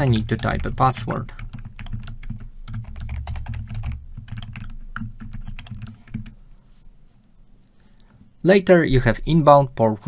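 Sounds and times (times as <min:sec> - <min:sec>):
fast typing on keyboard: 0:00.0 - 0:06.4.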